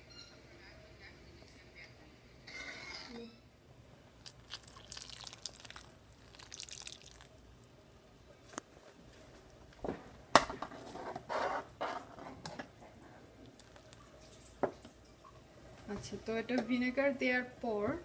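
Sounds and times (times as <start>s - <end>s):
milk sloshing in metal pot: 4.2s - 7.6s.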